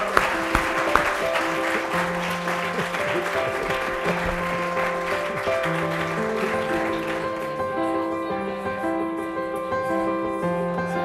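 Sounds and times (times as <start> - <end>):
audience applauding: 0.0 - 8.3
music with long held notes: 0.0 - 11.0.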